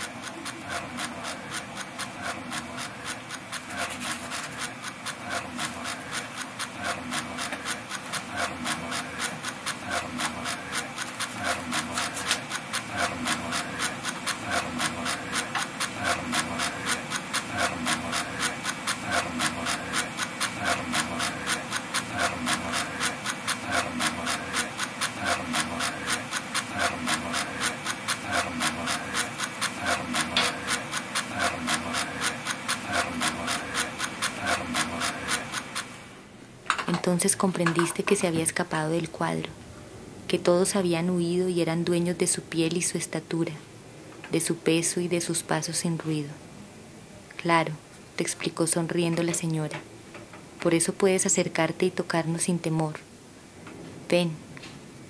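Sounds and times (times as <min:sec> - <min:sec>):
rhythmic scratching: 0:00.0 - 0:35.9.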